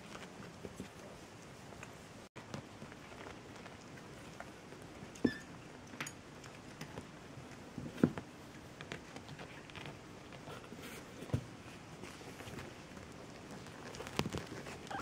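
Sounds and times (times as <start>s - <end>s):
paws scratching in cardboard box: 7.0s - 15.0s.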